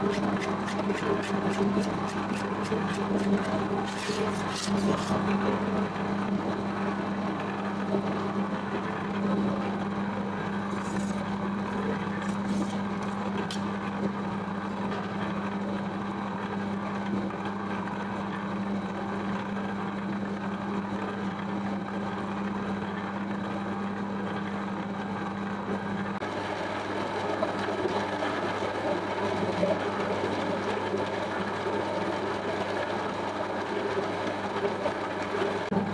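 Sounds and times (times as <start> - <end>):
dough hook churning in metal bowl: 0.0 - 5.3
dough mixer motor humming: 0.0 - 35.9.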